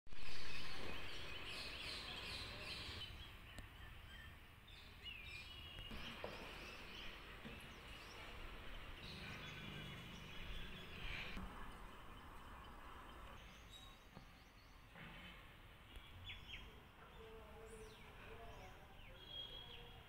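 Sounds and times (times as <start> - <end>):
birds chirping: 0.1 - 20.0
low outdoor rumble: 5.9 - 14.4.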